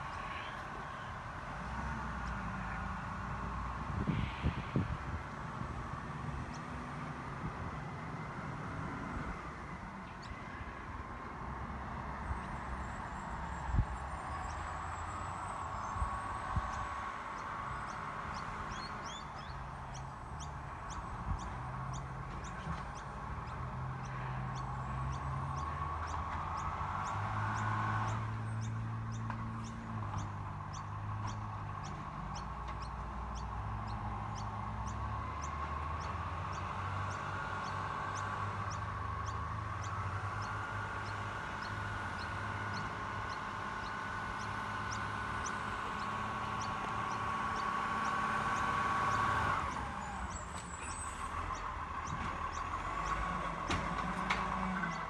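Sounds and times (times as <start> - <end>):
garbage truck diesel engine: 29.3 - 55.0.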